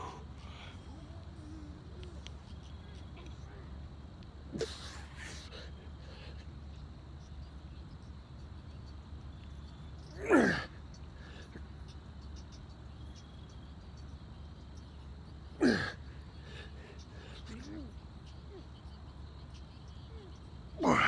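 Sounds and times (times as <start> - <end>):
faint insect chirping: 0.0 - 21.0
low steady hum: 0.0 - 21.0
man groaning: 20.8 - 21.0.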